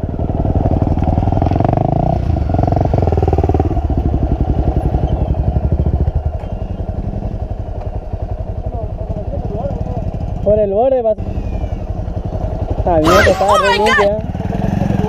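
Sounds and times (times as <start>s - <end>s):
dirt bike engine revving: 0.0s - 7.4s, 11.2s - 15.0s.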